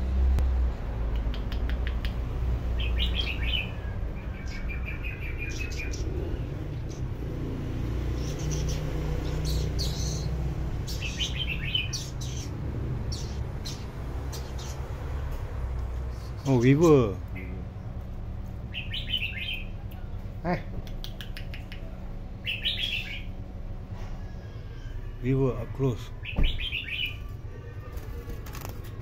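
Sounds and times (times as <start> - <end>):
steady low hum: 0.0 - 29.0
sharp clicks: 1.1 - 2.3, 20.8 - 21.9
bird chirping and trilling: 2.7 - 15.2, 16.1 - 18.0, 18.6 - 20.3, 20.9 - 23.5, 24.1 - 28.7.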